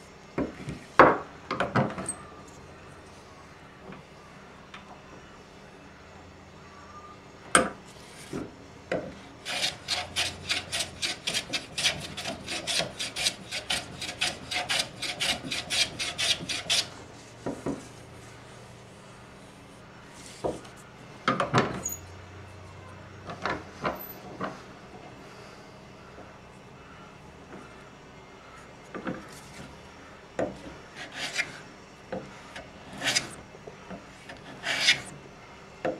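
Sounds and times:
sanding wood by hand: 9.4s - 16.9s, 34.4s - 35.1s.

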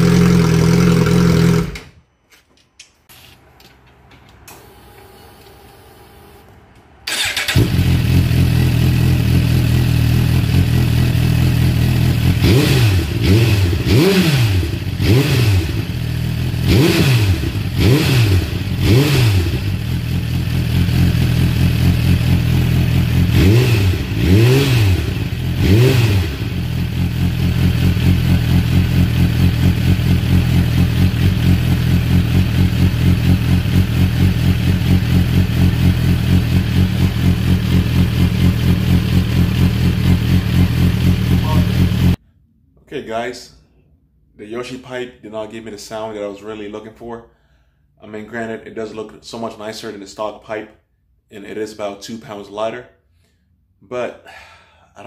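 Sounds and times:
motorcycle engine idling and revving: 0.0s - 1.8s, 7.1s - 42.2s.

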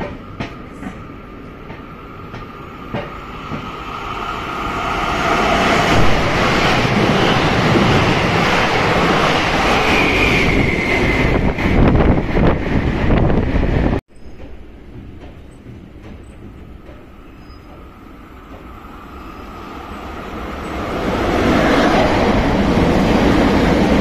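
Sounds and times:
train running past: 0.0s - 24.0s
high wheel squeal: 19.1s - 19.8s.

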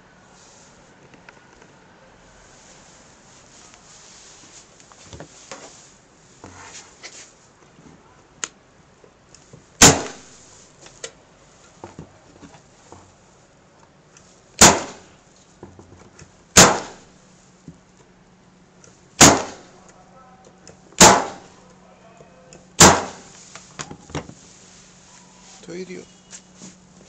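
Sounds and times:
staple gun firing: 21.0s - 21.5s, 22.8s - 23.2s.

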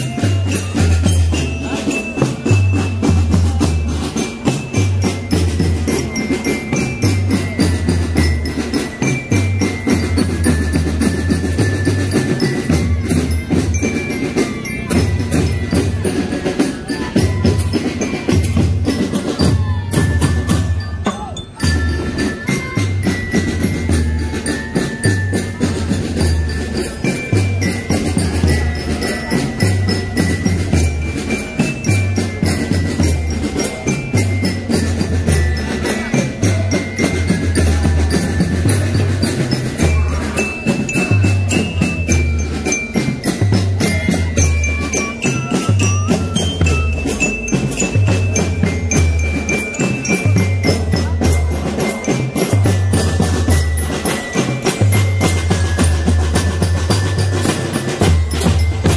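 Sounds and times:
high bell-like melody: 0.0s - 58.9s
fast dense drumming: 21.6s - 58.9s.

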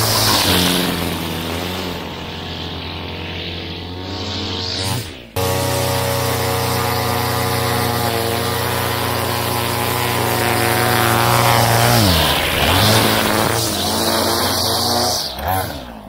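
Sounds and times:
string trimmer engine running: 0.0s - 16.0s.

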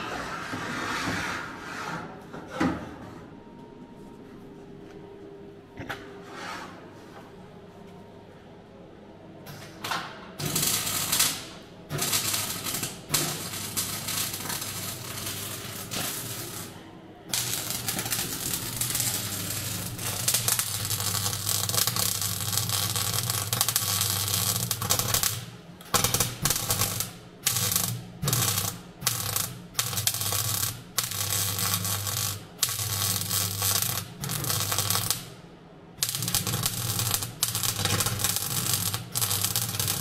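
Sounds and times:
mig welder crackling: 10.4s - 35.4s, 36.0s - 40.0s.

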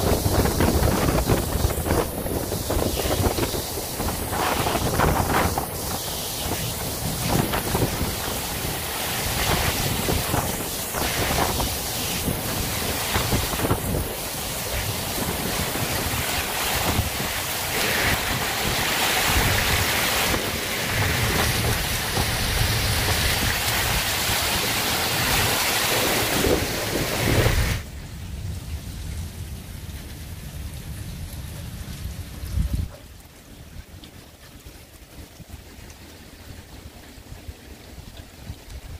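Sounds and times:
wind buffeting microphone: 0.0s - 27.9s
rain: 0.0s - 38.9s.

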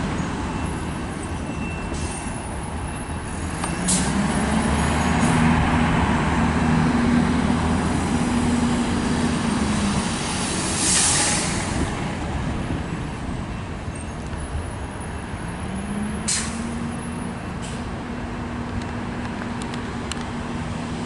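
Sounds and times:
bus engine drone: 0.0s - 21.0s
air brakes hissing: 1.8s - 2.4s, 10.2s - 11.9s, 16.2s - 16.8s.

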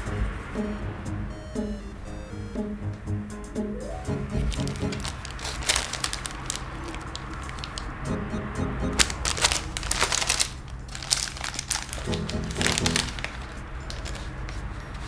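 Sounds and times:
light background music: 0.0s - 5.9s, 7.9s - 15.0s
paper wrapping crackling: 4.4s - 8.0s, 9.0s - 15.0s.

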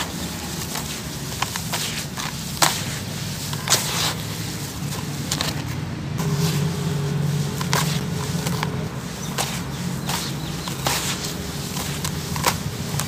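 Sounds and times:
gritty crumbs falling: 0.0s - 6.9s, 7.5s - 13.0s
steady low hum: 4.2s - 13.0s
hands crumbling crunchy chunks: 7.6s - 13.0s.

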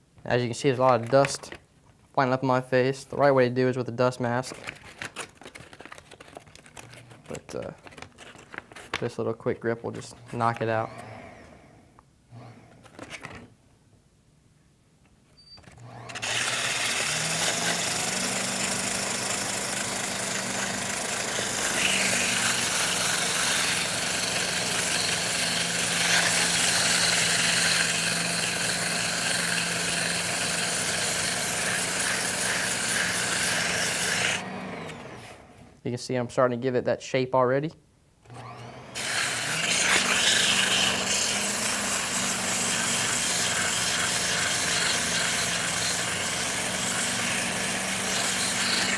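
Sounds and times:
lathe motor humming: 15.8s - 35.5s, 38.3s - 48.9s
sandpaper sanding spinning cork: 21.3s - 34.4s, 39.0s - 47.5s.

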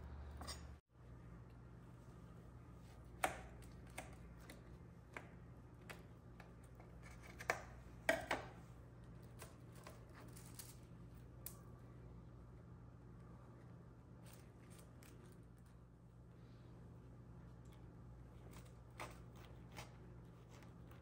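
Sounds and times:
knife crunching through toasted bread: 17.6s - 21.0s.

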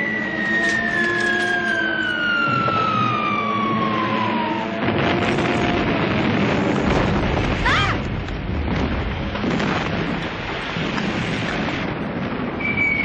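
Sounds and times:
air-raid siren winding down: 0.0s - 6.2s.

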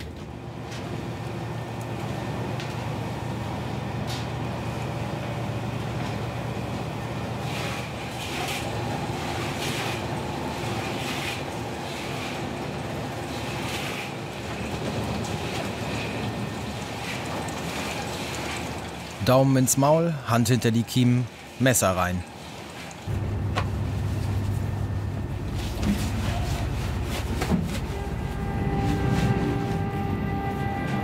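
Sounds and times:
boat engine and machinery drone: 0.0s - 31.0s
fish clattering in steel troughs: 7.5s - 19.2s.

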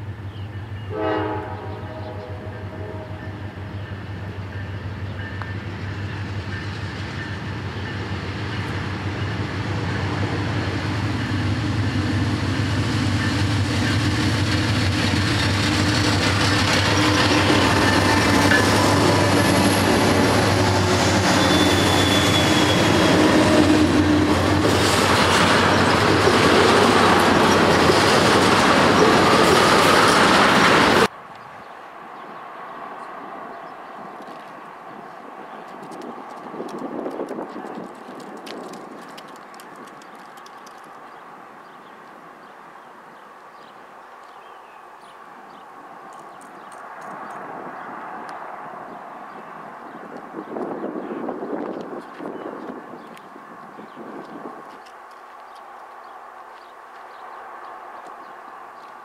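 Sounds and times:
diesel locomotive engine drone: 0.0s - 37.4s
train wheels clattering over rails: 10.3s - 31.1s.

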